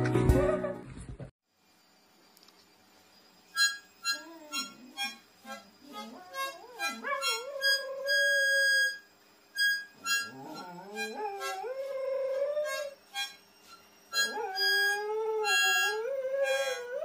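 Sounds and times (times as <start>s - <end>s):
dog howling: 4.1s - 8.9s, 10.2s - 13.0s, 14.2s - 17.0s.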